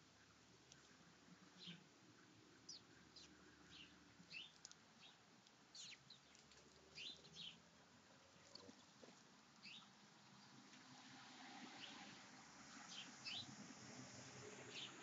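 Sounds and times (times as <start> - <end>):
sparrows chirping: 1.6 - 1.8, 2.7 - 7.6, 9.6 - 10.0, 11.8 - 13.5, 14.7 - 15.0.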